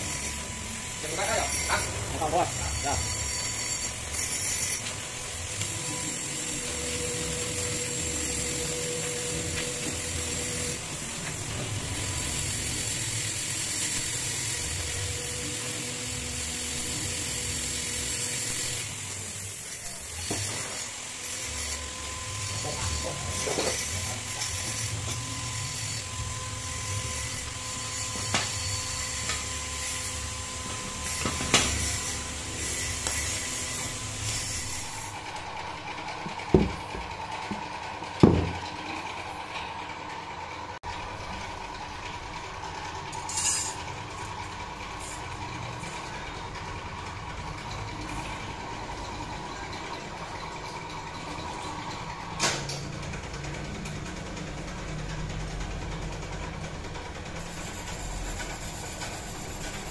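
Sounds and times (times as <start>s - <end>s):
welding torch flame hissing: 0.0s - 36.7s, 57.4s - 59.9s.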